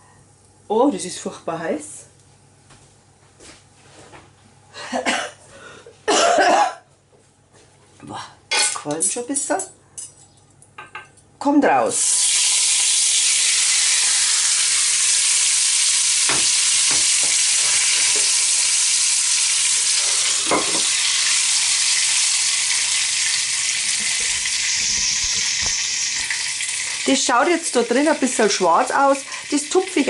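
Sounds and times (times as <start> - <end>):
hot fat sizzling: 11.9 - 30.0
cookware knocks: 20.5 - 20.9.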